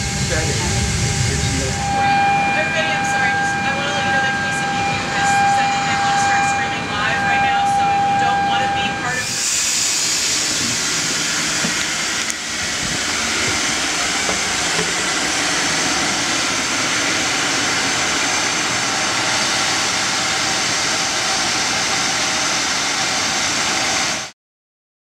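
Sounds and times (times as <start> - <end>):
rushing air in aircraft cabin: 0.0 - 2.2, 9.1 - 24.3.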